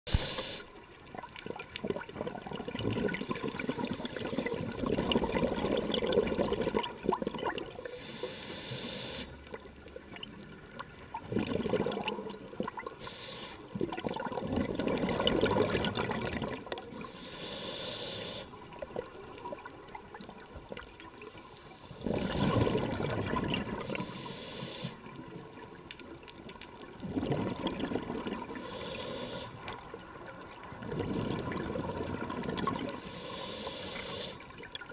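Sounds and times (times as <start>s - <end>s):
air bubbles gurgling underwater: 1.1s - 7.9s, 10.1s - 13.0s, 13.7s - 17.1s, 21.8s - 24.1s, 25.0s - 33.0s.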